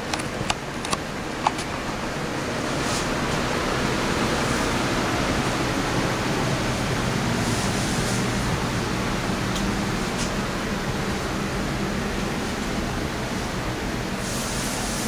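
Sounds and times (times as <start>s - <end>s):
blower rushing: 0.0s - 15.0s
sharp click: 0.1s - 1.7s.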